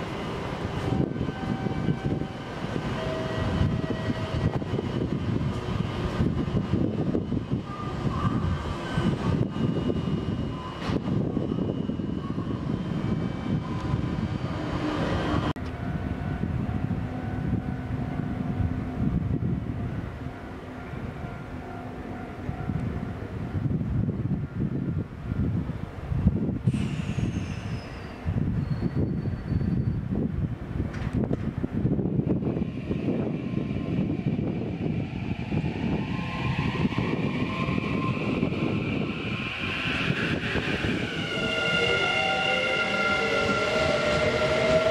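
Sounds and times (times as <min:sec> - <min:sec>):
train equipment hum and whir: 0:00.0 - 0:44.9.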